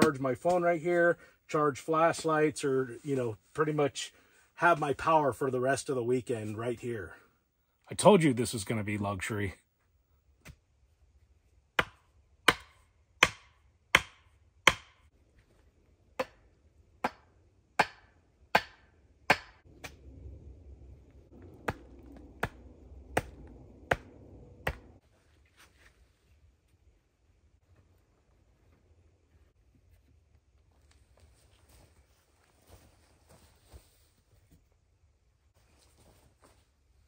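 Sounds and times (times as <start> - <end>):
tool hammering wood: 11.8 - 15.1, 16.2 - 19.6, 21.6 - 24.9.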